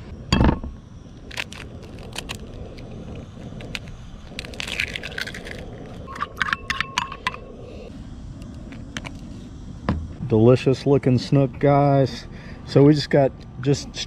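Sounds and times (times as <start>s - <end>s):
eggshell cracking: 1.3s - 2.8s, 3.6s - 6.8s.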